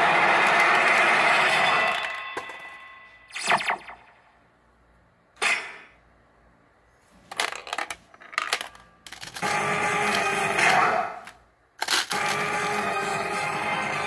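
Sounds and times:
pachinko electronic sound effects: 0:03.3 - 0:04.2.

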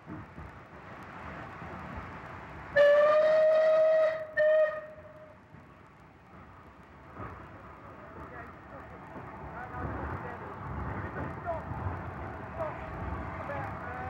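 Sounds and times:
steam locomotive whistle: 0:02.8 - 0:05.0.

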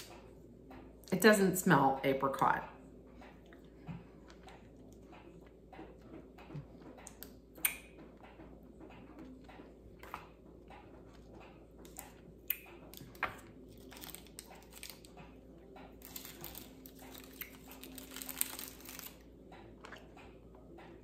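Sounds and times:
candy wrapper crinkling: 0:13.7 - 0:15.2, 0:16.0 - 0:19.3.

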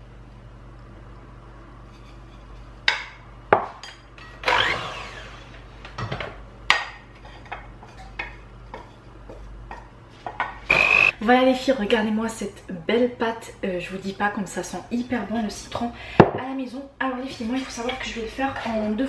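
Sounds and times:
spoon scraping rub: 0:01.8 - 0:02.8.

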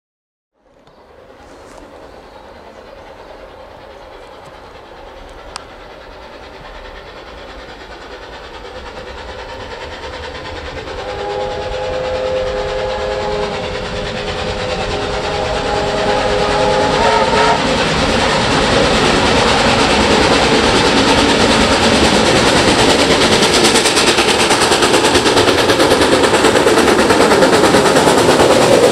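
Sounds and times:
steam locomotive working: 0:00.6 - 0:28.9
steam whistle chord: 0:10.8 - 0:17.8.

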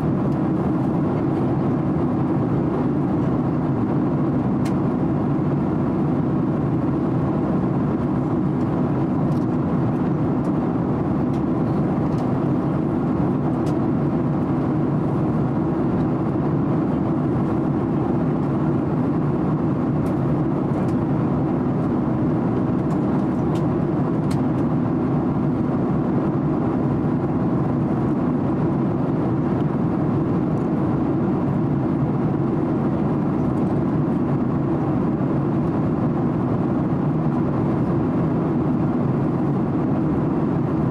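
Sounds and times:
airplane cabin engine rush: 0:00.0 - 0:40.9.

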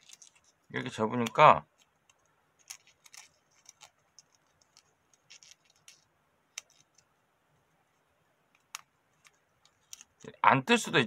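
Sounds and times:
paper crinkling while folded: 0:00.0 - 0:07.1.

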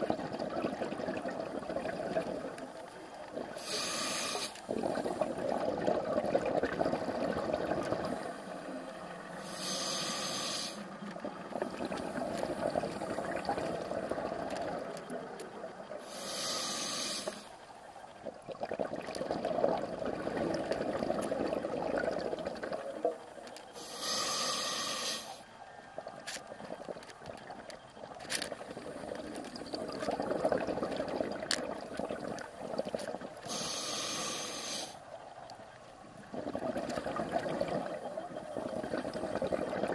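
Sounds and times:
exhaust bubbles bubbling: 0:00.0 - 0:02.6, 0:04.6 - 0:09.4, 0:10.8 - 0:16.0, 0:18.2 - 0:23.2, 0:28.6 - 0:33.5, 0:36.3 - 0:39.9
regulator inhalation hiss: 0:03.5 - 0:04.7, 0:09.3 - 0:10.9, 0:16.0 - 0:17.5, 0:23.7 - 0:25.4, 0:33.5 - 0:35.0.

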